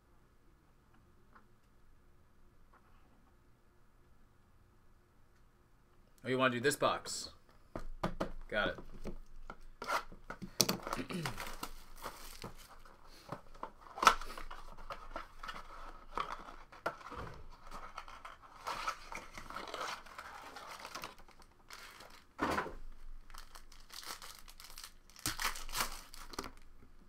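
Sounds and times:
plastic wrap crinkling and tearing: 9.8 - 13.0, 13.6 - 26.8.

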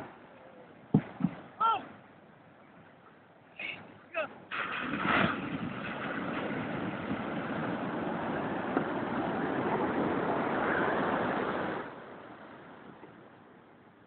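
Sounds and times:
wind: 0.0 - 14.0
surf rushing: 3.6 - 13.5.

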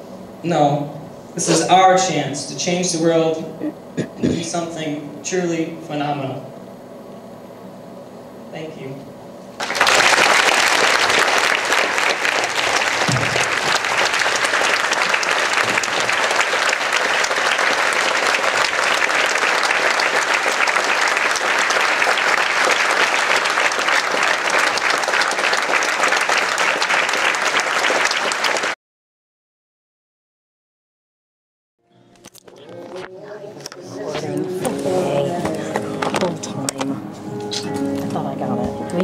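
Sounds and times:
audience applauding: 9.6 - 28.8.

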